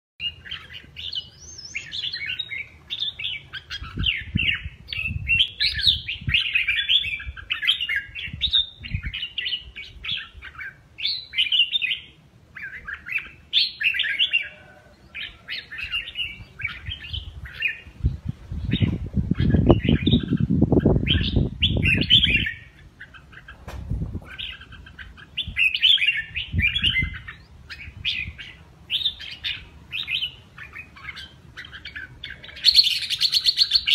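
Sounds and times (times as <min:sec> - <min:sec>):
bird singing chirpy phrases: 0:00.2 - 0:33.9
low bumping and rustling: 0:23.6 - 0:24.4.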